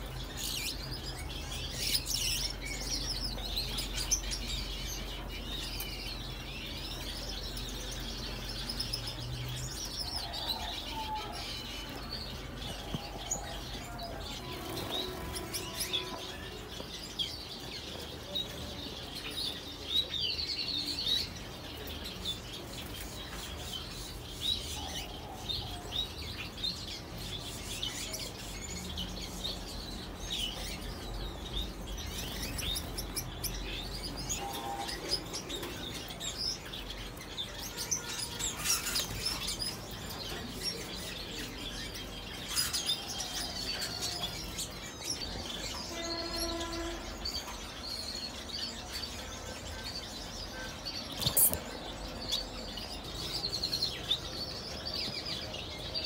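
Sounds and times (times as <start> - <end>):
small birds chirping: 0.0 - 56.0
lower pitched bird call: 45.8 - 47.3.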